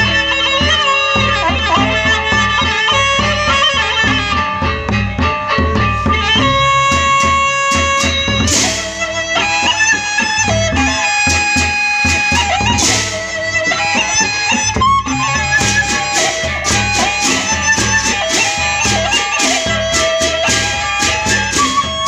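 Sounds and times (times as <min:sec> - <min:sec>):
bamboo flute melody: 0:00.0 - 0:22.0
large drums: 0:00.0 - 0:22.0
small gongs: 0:04.0 - 0:22.0
cymbal crashes: 0:05.8 - 0:09.4.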